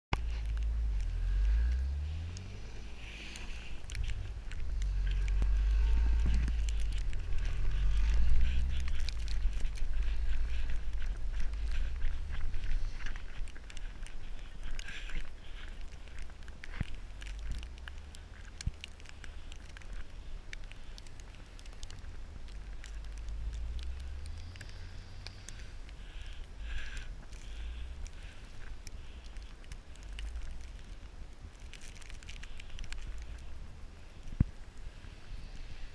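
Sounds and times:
sharp crackles and ticks: 0.1 - 35.9
wind rumbling on microphone: 0.1 - 35.9
car engine revving: 0.5 - 11.6.

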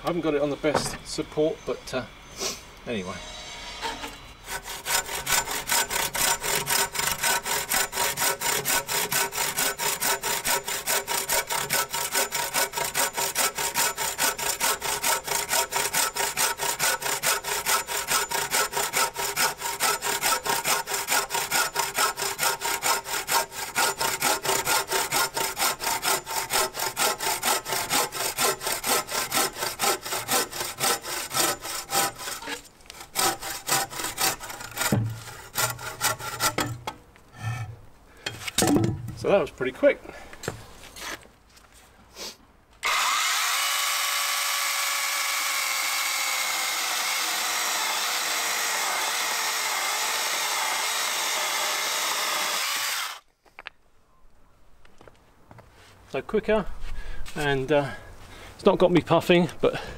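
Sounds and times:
bow saw cutting wood: 2.4 - 38.6, 42.2 - 53.2.

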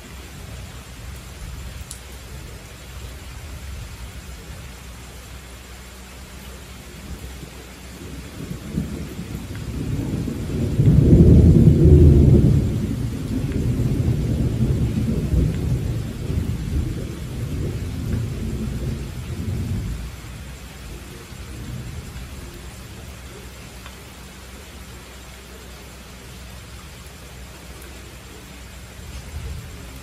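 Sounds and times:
steady rain: 0.0 - 30.0
thunder rumbling: 6.6 - 25.5, 26.3 - 30.0.

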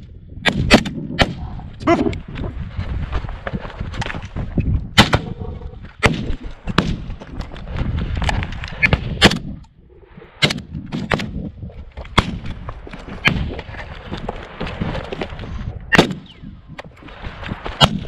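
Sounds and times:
rifle shots: 15.9 - 16.4.

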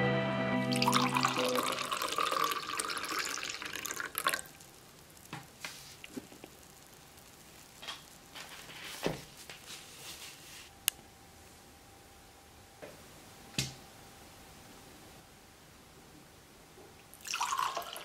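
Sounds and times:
wine pouring into glass: 0.7 - 4.6, 17.2 - 18.0.

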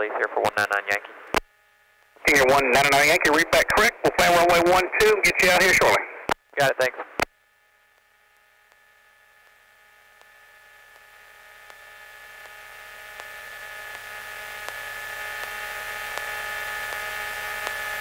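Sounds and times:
electrical hum and whine: 0.0 - 18.0
faint regular ticks: 10.9 - 14.8, 15.4 - 17.8.

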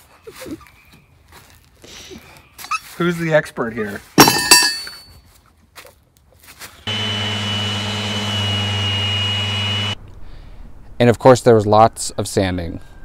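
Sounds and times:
electric sander whining: 6.9 - 10.0.

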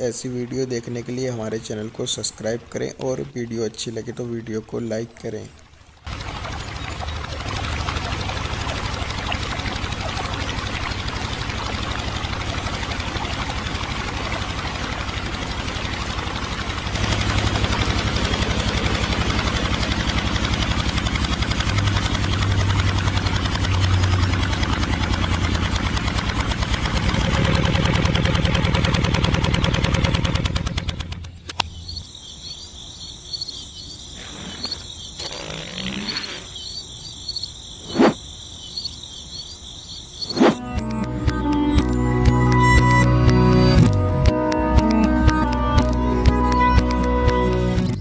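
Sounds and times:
water splashing: 0.0 - 31.4
small pump motor humming: 6.0 - 31.4, 40.3 - 48.0
crickets chirping: 31.6 - 40.6.

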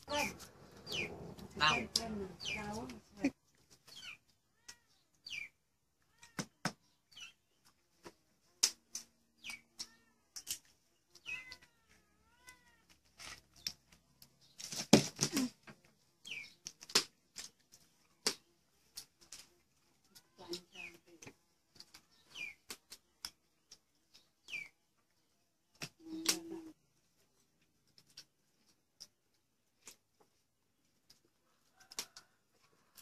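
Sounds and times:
cat meowing: 4.5 - 5.0, 6.0 - 6.5, 11.2 - 13.0.

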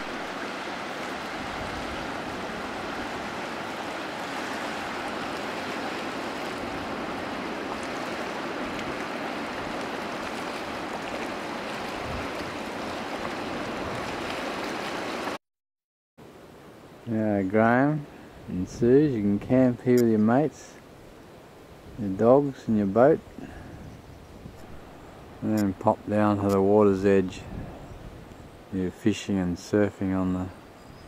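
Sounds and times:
sea washing over rocks: 0.0 - 15.4
surf breaking: 0.0 - 15.4.

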